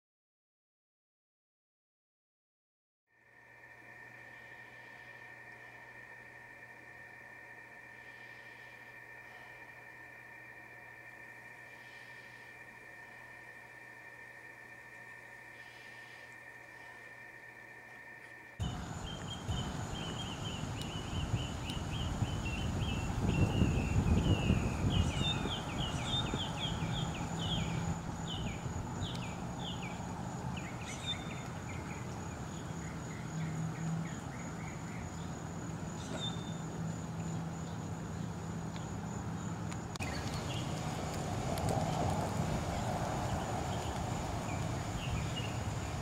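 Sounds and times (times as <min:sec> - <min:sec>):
high-pitched drone: 0:03.2 - 0:30.2
low background noise: 0:03.2 - 0:46.0
quick chirping calls: 0:18.6 - 0:30.0.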